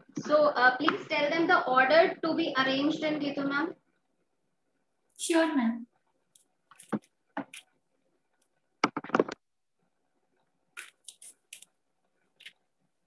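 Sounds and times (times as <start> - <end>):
objects handled rustles and clicks: 6.3 - 9.4.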